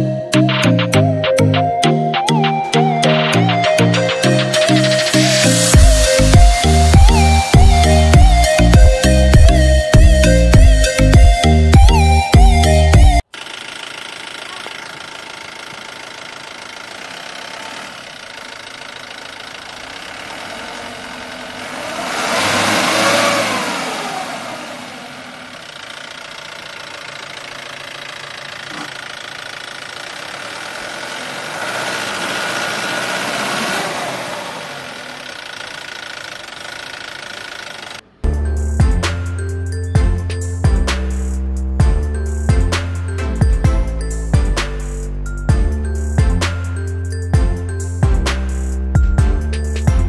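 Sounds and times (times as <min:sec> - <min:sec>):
outdoor background noise: 0:13.2 - 0:48.8
vehicle engine passing by: 0:17.2 - 0:26.6, 0:30.4 - 0:35.4.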